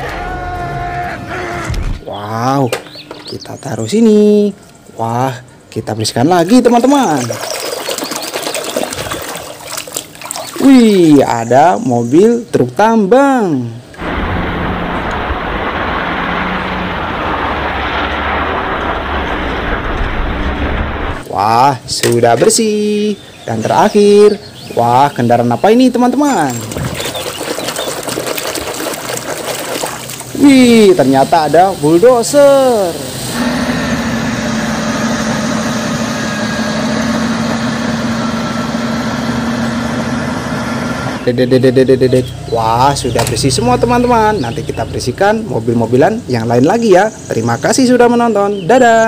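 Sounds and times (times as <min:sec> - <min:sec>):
truck diesel engine running: 0:14.0 - 0:21.2, 0:32.7 - 0:41.4.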